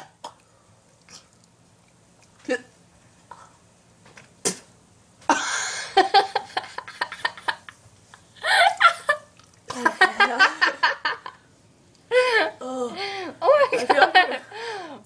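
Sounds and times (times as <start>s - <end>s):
girls laughing: 5.3s - 7.8s, 8.4s - 11.4s, 13.4s - 14.4s.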